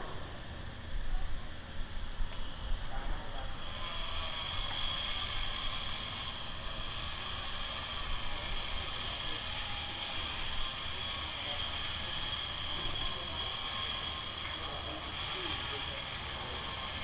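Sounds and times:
angle grinder grinding metal: 3.5 - 17.0.

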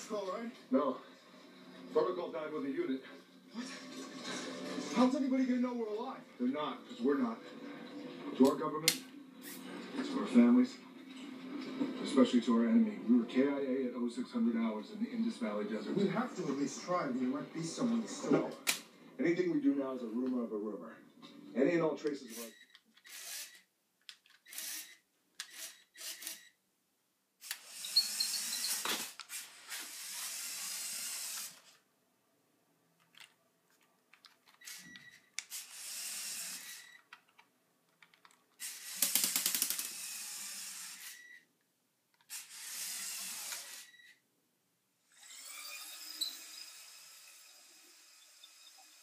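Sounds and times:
toy electric motors whirring: 22.2 - 26.6, 27.4 - 31.8, 34.5 - 37.2, 38.6 - 41.4, 42.2 - 44.2, 45.1 - 49.0.

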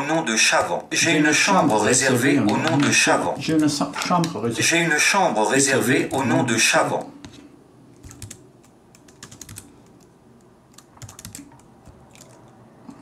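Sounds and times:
laptop keyboard typing: 0.5 - 4.4, 7.2 - 12.6.

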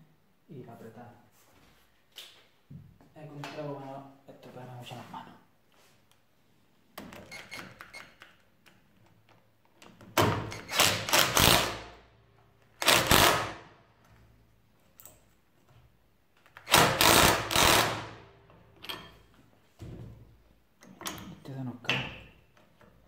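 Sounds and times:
impact wrench hammering: 16.6 - 18.2.

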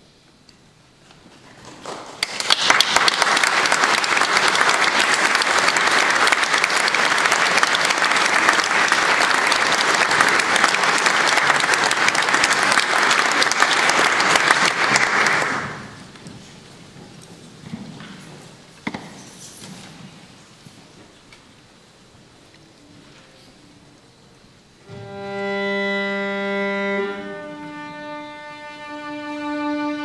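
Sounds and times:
audience applauding: 1.6 - 16.2.

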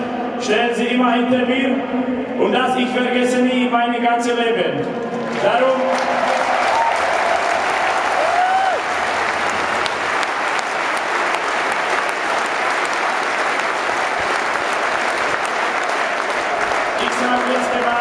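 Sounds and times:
stadium crowd applauding and cheering: 5.0 - 18.0.

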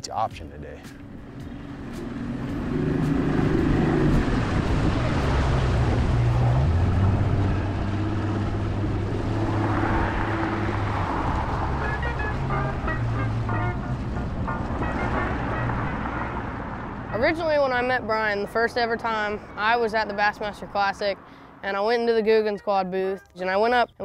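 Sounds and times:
wind and water rushing: 1.0 - 21.2
outboard motor running: 1.1 - 16.4.

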